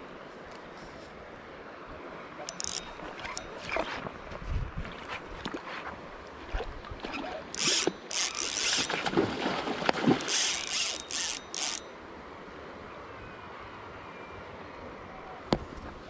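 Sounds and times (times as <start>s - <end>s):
fishing reel drag ratcheting: 2.5s - 3.8s, 7.1s - 9.0s, 10.2s - 11.9s
fish splashing: 7.0s - 11.8s.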